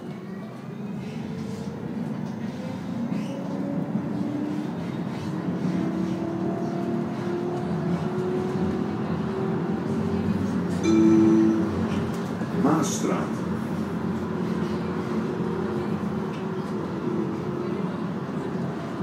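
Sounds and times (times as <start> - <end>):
wheels rumbling on rails: 0.0 - 19.0.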